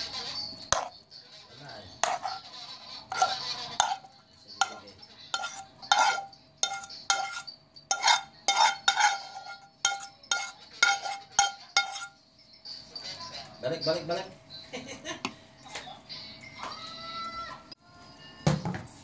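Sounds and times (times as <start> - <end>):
metal spoon scraping frying pan: 0.0 - 12.2.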